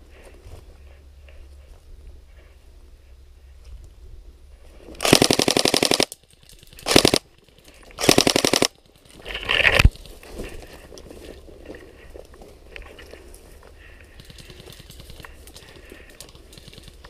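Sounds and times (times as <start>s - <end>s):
airsoft rifle firing bursts: 5.0s - 7.4s, 8.0s - 8.8s, 14.2s - 15.3s, 16.5s - 17.0s.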